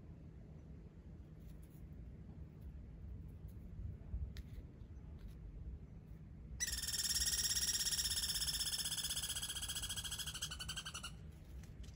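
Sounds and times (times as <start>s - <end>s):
squirrel trilled call: 6.6s - 11.2s.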